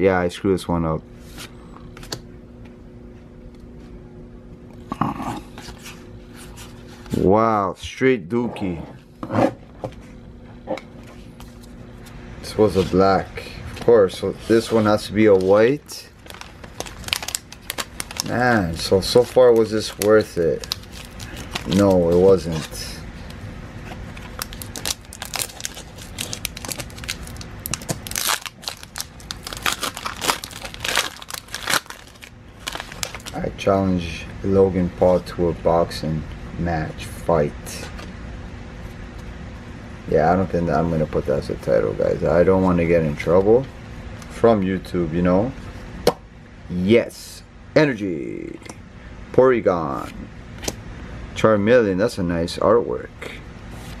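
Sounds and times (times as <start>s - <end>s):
card rustle: 13.8s - 22.9s, 23.8s - 33.4s
trading cards scraping: 14.2s - 33.3s
foil wrapper crinkling: 14.6s - 23.0s, 24.1s - 33.5s.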